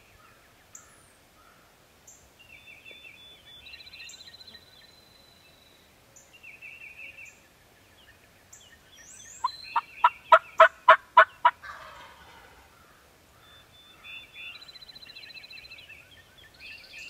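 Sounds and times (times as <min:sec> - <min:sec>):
songbirds chirping: 0:00.0 - 0:17.0
turkey yelping: 0:09.4 - 0:12.7.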